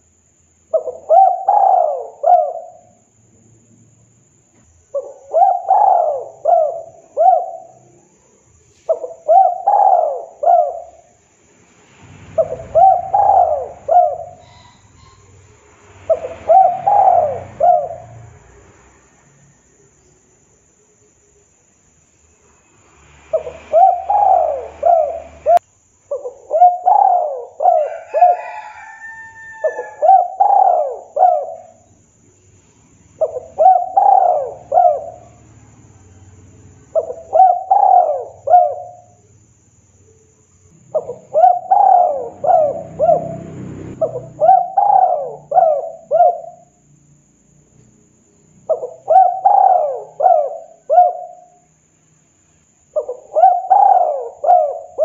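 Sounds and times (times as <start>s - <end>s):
dove cooing: 0.7s - 3.0s, 4.8s - 8.0s, 8.8s - 11.2s, 12.3s - 18.4s, 23.3s - 31.9s, 33.2s - 35.6s, 36.9s - 39.2s, 40.9s - 46.8s, 48.6s - 51.6s, 52.9s - 55.0s.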